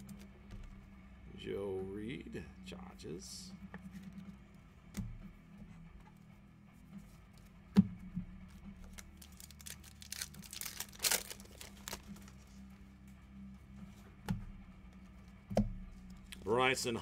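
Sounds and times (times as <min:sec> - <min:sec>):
packaging tearing and crinkling: 0:08.9 - 0:12.4.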